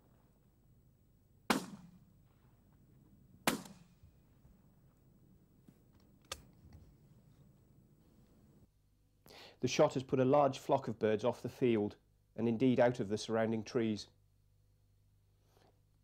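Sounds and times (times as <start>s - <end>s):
shotgun shots: 1.5s - 2.1s, 3.4s - 4.0s.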